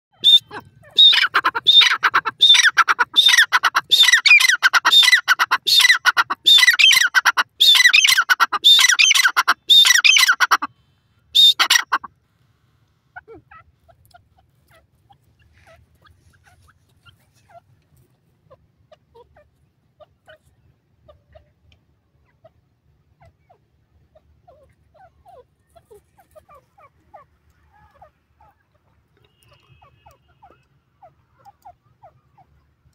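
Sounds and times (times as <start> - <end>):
francolin calling: 0.1 - 10.7.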